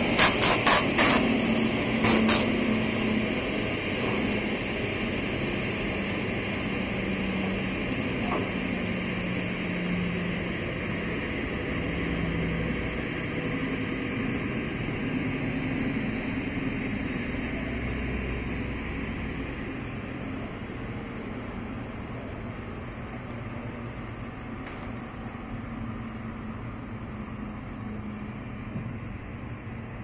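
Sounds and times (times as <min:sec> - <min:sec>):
mitre saw running: 0:00.0 - 0:03.1.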